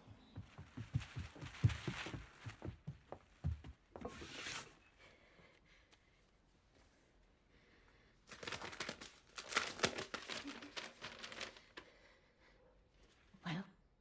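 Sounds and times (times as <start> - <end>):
paper envelope tearing and crinkling: 8.3 - 11.7.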